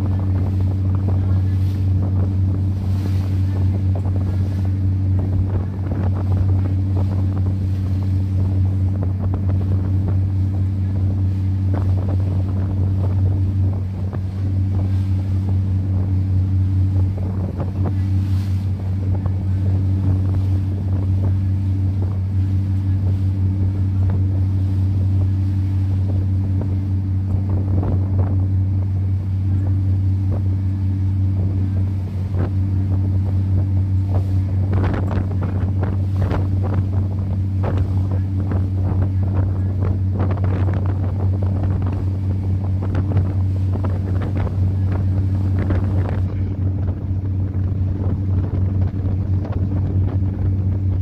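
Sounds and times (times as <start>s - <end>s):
boat engine droning: 0.0s - 51.0s
water rushing past hull: 0.0s - 51.0s
wind buffeting microphone: 0.0s - 51.0s.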